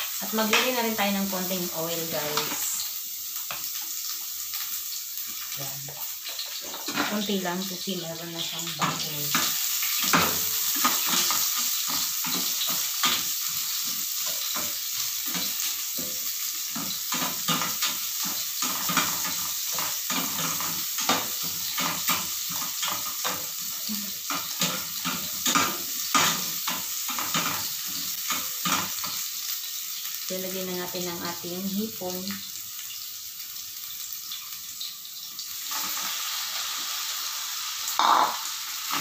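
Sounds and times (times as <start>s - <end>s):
onions sizzling in frying pan: 0.0s - 39.0s
spatula scraping and tapping pan: 8.8s - 23.6s, 38.0s - 39.0s.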